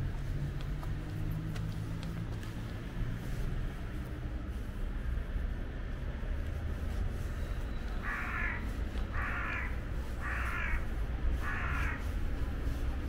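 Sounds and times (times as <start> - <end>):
crow cawing: 8.0 - 12.1.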